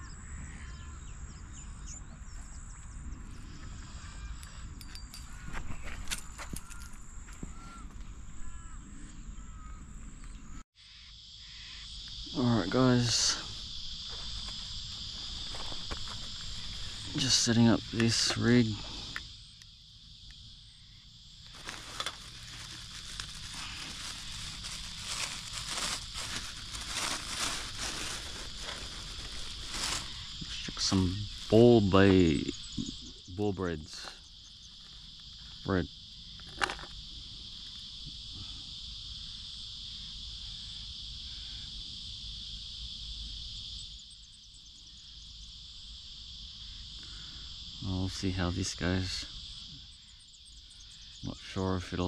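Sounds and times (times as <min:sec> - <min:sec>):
insects trilling: 0:00.0 - 0:52.0
plastic bag crinkling: 0:21.5 - 0:30.3.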